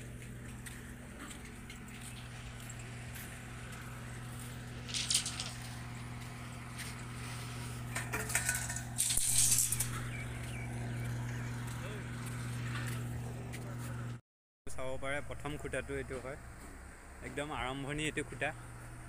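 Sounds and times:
low machine hum: 0.0s - 19.0s
steel bars clinking and rattling: 4.8s - 5.8s, 7.9s - 10.2s.

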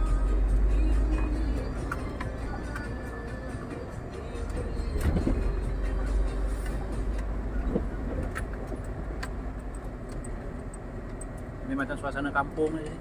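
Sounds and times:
diesel truck engine: 0.0s - 13.0s
road rumble: 0.0s - 13.0s
cab clicks and rattles: 1.1s - 5.7s, 6.6s - 11.5s.

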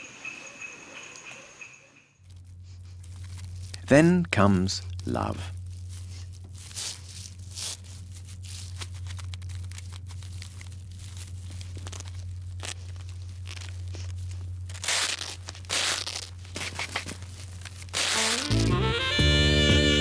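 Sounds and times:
steady low hum: 0.1s - 20.0s
small crinkling scratches: 2.2s - 18.7s
rustling bursts: 5.0s - 19.2s.

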